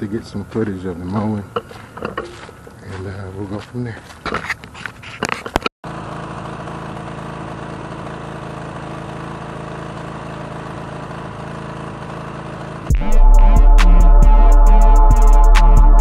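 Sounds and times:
lawn mower engine running: 0:00.0 - 0:02.8, 0:05.9 - 0:13.4
electronic music with bass beat: 0:12.9 - 0:16.0.

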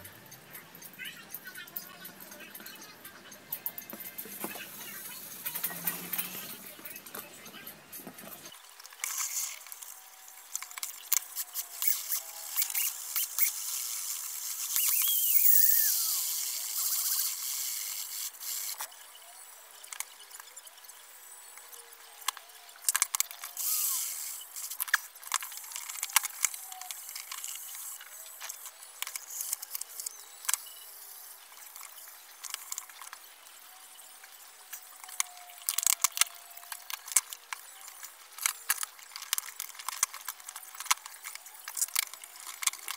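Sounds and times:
screwdriver and metal parts clicking: 0:03.5 - 0:17.4, 0:22.2 - 0:33.2, 0:34.6 - 0:42.9.

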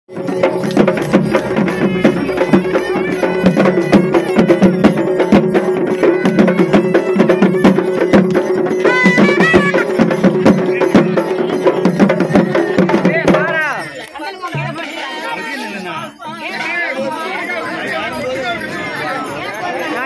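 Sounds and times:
fast dense drumming: 0:00.1 - 0:13.8
high wavering notes: 0:00.4 - 0:05.2.

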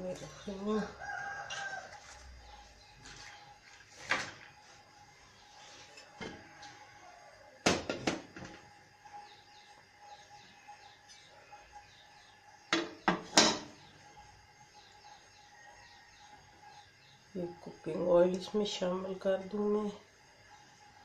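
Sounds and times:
pot and lid clanking on stove: 0:12.8 - 0:13.8.

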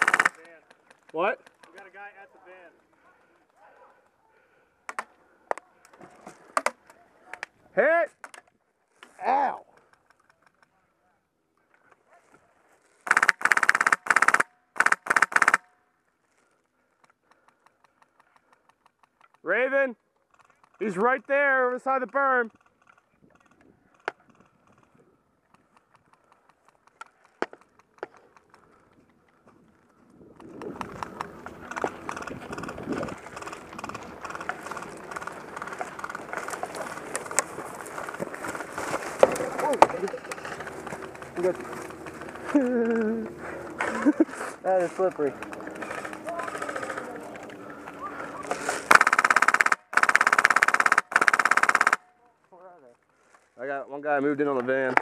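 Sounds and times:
airsoft gun fully automatic bursts: 0:00.0 - 0:00.4, 0:13.1 - 0:15.7, 0:48.8 - 0:52.1
sharp clicks: 0:00.0 - 0:02.0, 0:13.1 - 0:15.7, 0:17.0 - 0:19.5, 0:20.2 - 0:21.2, 0:22.0 - 0:29.4, 0:30.4 - 0:37.5, 0:45.0 - 0:52.1
footsteps crunching over snow: 0:31.0 - 0:42.7.

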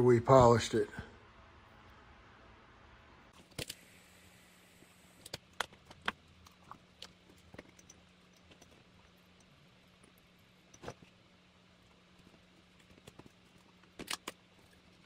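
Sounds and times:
faint steady hum: 0:00.0 - 0:15.0
small tools clicking and tapping: 0:05.2 - 0:11.2.

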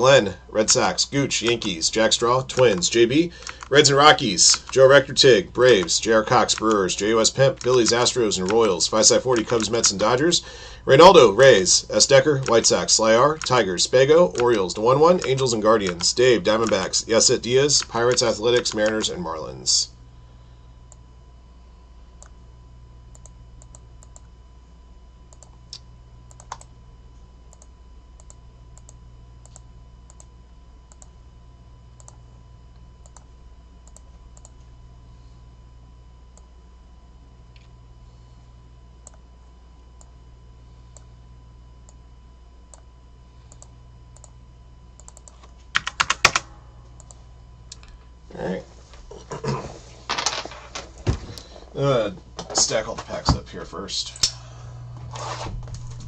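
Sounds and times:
steady low hum: 0:00.0 - 0:56.0
keyboard and mouse clicks: 0:02.5 - 0:03.8, 0:05.8 - 0:06.8, 0:07.6 - 0:10.0, 0:12.4 - 0:12.7, 0:14.3 - 0:16.8, 0:17.8 - 0:19.1, 0:25.3 - 0:26.7, 0:45.0 - 0:46.4.

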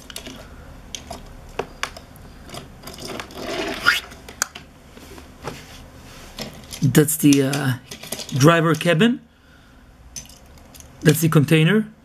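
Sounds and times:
plastic toy parts clicking: 0:06.4 - 0:09.0.

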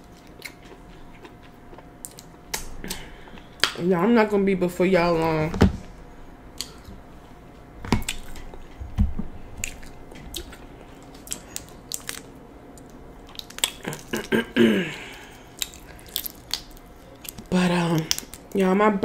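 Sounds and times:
chewing and wet squishing: 0:00.0 - 0:03.8, 0:07.9 - 0:08.8, 0:09.6 - 0:14.4, 0:15.0 - 0:18.6.

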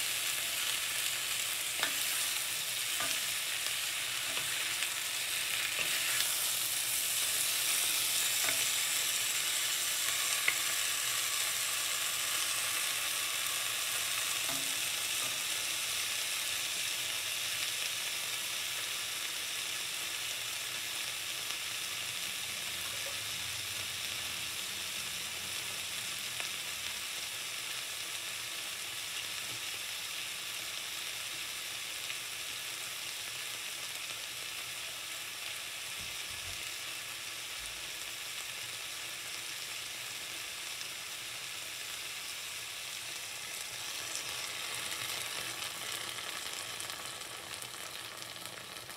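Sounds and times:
vegetables sizzling in oil: 0:00.0 - 0:48.9
wooden spatula stirring vegetables: 0:01.3 - 0:10.8.

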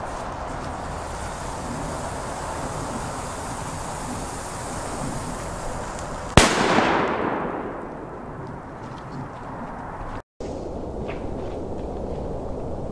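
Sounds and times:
firecracker fuse hissing: 0:00.0 - 0:08.0
firecracker bang: 0:00.8 - 0:08.7.

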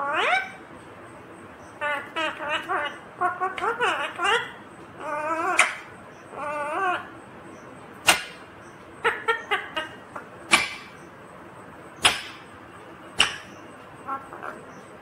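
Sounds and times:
parakeet wavering call: 0:00.0 - 0:00.6, 0:01.6 - 0:07.2, 0:08.0 - 0:11.1.

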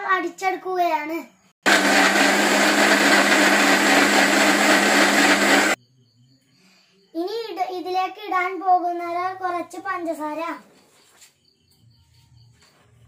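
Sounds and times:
mixer grinder motor running: 0:01.6 - 0:05.8.

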